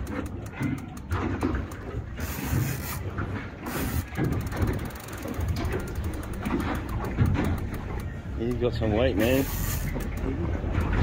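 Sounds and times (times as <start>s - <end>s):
fishing reel clicking: 0.0s - 3.0s, 3.6s - 10.3s.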